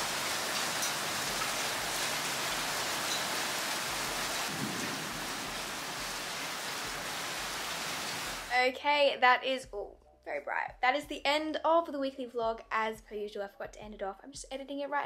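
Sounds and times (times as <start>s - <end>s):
heavy rain on ground: 0.0s - 8.5s
faint raindrop ticks: 0.6s - 2.2s, 3.1s - 3.4s.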